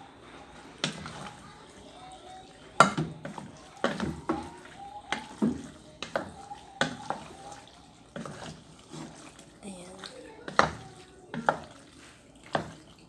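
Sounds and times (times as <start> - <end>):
wooden spatula stirring pasta: 0.0 - 13.0
spatula knocking against metal pot: 2.8 - 7.3.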